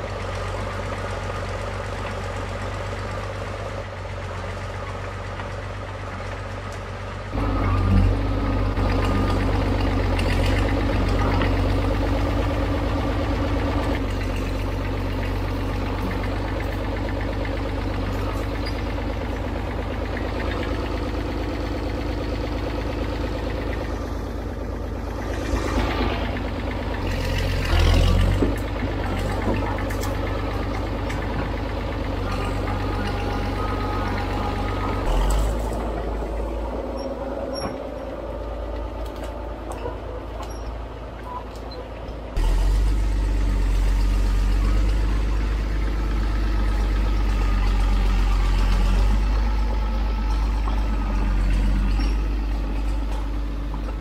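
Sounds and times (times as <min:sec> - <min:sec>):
bulldozer diesel engine running: 0:00.0 - 0:54.0.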